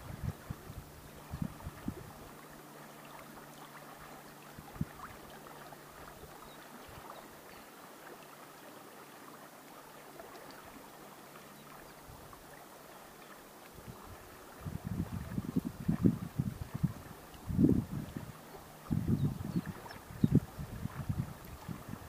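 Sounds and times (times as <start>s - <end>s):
wind thumps on microphone: 0.0s - 2.1s, 14.6s - 22.0s
river water lapping against bank: 0.0s - 22.0s.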